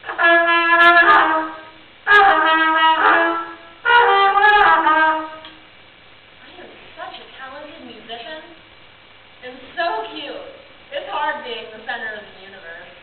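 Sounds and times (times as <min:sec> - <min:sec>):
solo trumpet playing: 0:00.0 - 0:05.7.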